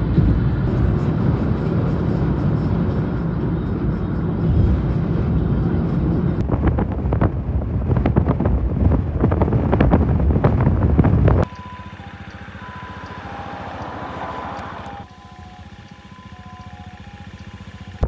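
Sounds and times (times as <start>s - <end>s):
vehicle rumble from inside: 0.0s - 18.0s
short beeping tones: 11.4s - 18.0s.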